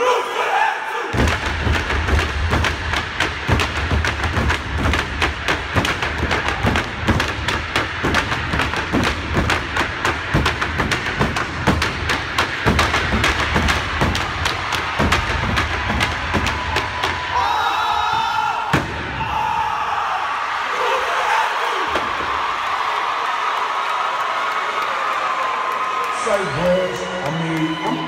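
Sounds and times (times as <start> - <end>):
stomping and canes striking floor: 1.2 - 19.1.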